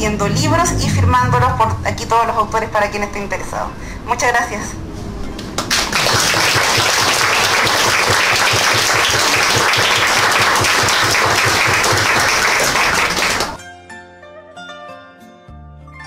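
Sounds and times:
audience applauding: 5.6s - 13.6s.

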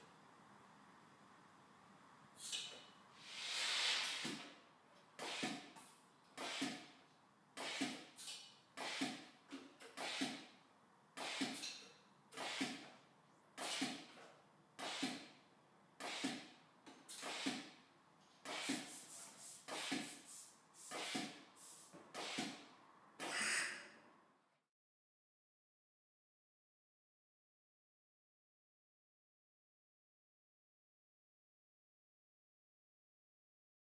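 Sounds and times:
long air hiss: 2.3s - 4.6s, 18.4s - 22.7s
short air puffs: 2.4s - 4.6s, 5.2s - 7.0s, 7.6s - 10.5s, 11.2s - 12.9s, 13.6s - 14.1s, 14.8s - 15.4s, 16.0s - 16.5s, 17.1s - 17.8s, 18.4s - 22.7s.

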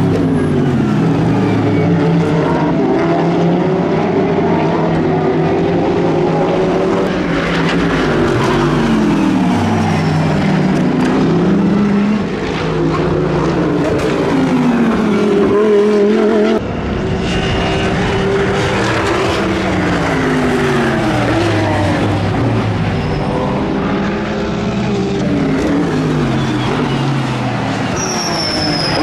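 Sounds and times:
race car engines revving: 0.0s - 29.0s.

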